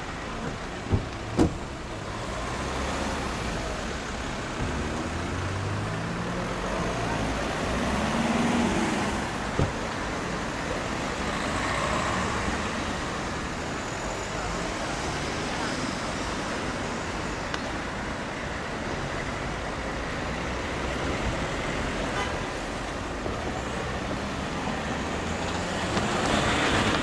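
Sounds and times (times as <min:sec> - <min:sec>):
cars driving past: 0:00.0 - 0:17.0, 0:18.6 - 0:27.0.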